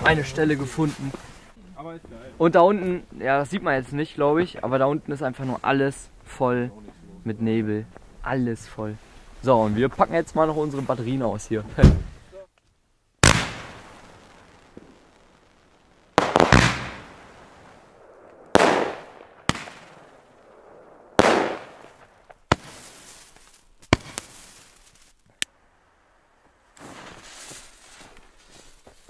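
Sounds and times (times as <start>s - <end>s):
fireworks bangs: 13.2s - 25.4s, 26.7s - 28.2s.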